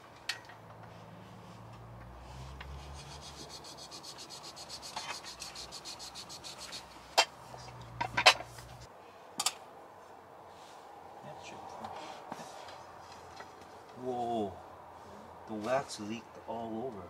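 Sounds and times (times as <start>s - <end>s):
rubbing or scraping strokes: 0.9s - 8.9s.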